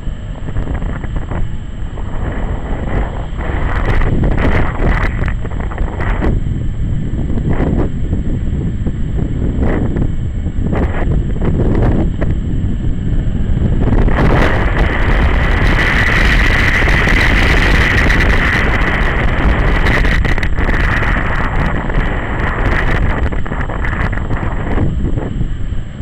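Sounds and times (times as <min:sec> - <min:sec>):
motorcycle engine: 0:00.0 - 0:26.0
road rumble: 0:00.0 - 0:26.0
wind rushing over microphone: 0:00.0 - 0:26.0.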